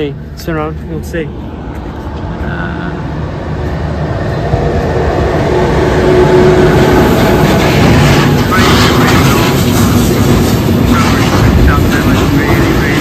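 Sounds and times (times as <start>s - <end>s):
train rumbling: 0.0s - 13.0s.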